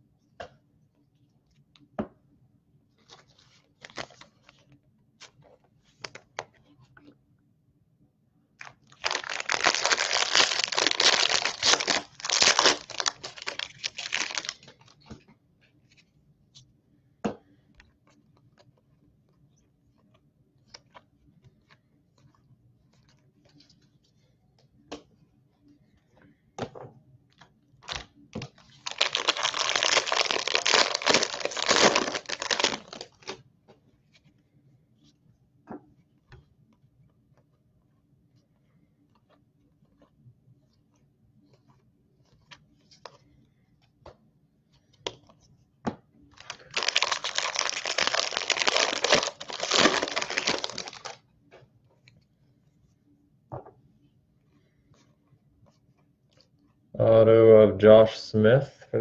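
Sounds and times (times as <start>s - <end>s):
foil wrappers tearing and crinkling: 8.9s - 14.6s, 28.8s - 33.2s, 46.4s - 51.2s.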